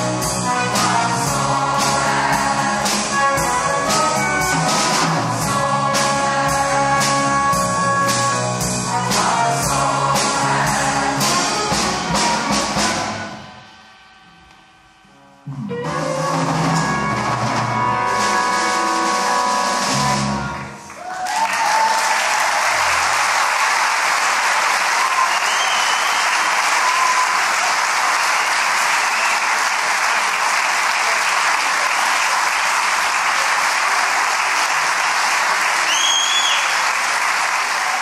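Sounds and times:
audience applause: 0:20.8 - 0:38.0
short high whistles: 0:25.2 - 0:27.4, 0:35.9 - 0:36.8.

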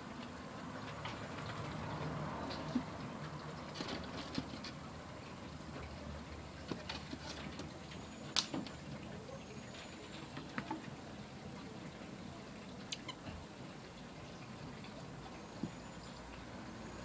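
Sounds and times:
marmoset whistling calls: 0:12.9 - 0:13.2.

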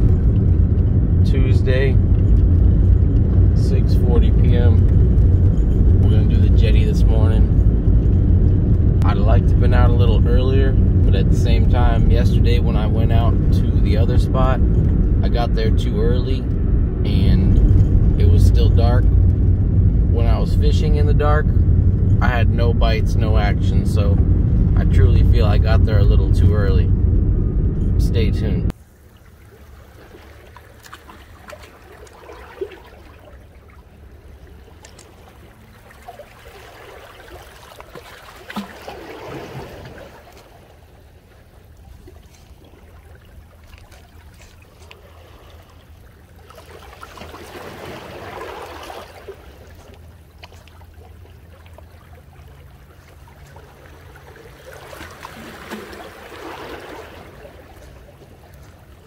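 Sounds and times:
low steady rumble: 0:00.0 - 0:59.0
waves lapping against rocks: 0:28.8 - 0:59.0.

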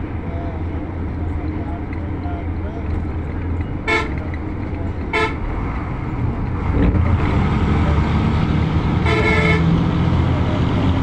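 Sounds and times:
vehicle driving rumble: 0:00.0 - 0:11.0
vehicle horn toots: 0:03.8 - 0:04.3, 0:05.1 - 0:05.4, 0:09.0 - 0:09.7.

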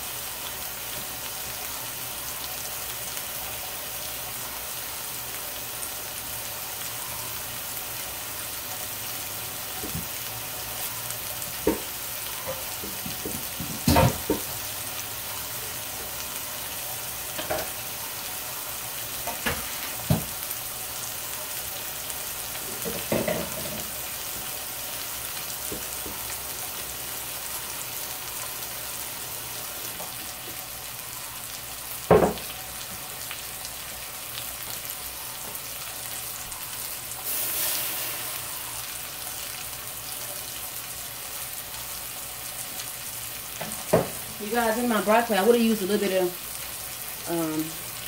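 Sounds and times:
meat sizzling in skillet: 0:00.0 - 0:48.0
kitchen utensils clattering: 0:12.5 - 0:14.4.

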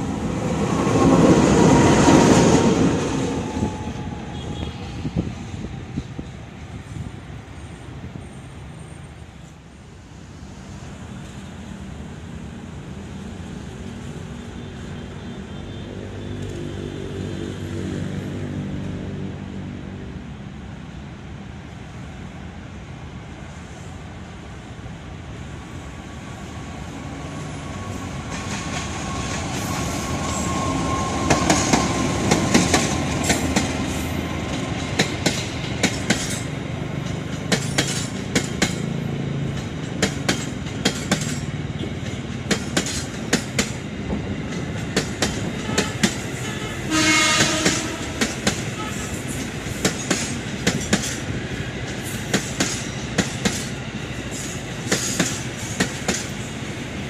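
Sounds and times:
diesel locomotive engine passing: 0:00.0 - 0:57.0
train horn: 0:03.6 - 0:05.0, 0:45.6 - 0:49.2
train wheels clicking over rail joints: 0:28.3 - 0:46.4, 0:47.3 - 0:56.4.

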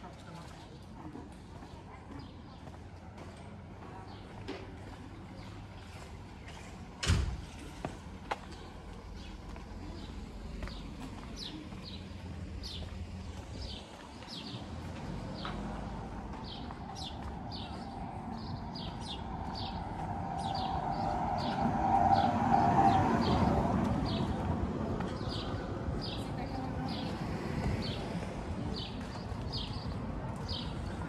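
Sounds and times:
car passing: 0:10.0 - 0:31.0.

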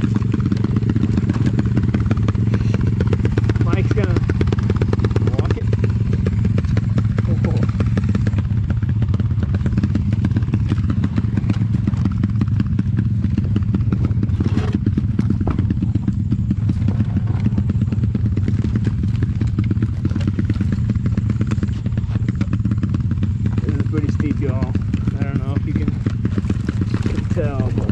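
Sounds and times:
bike knocking and rattling: 0:00.0 - 0:27.9
motorcycle engine running: 0:00.0 - 0:27.9.

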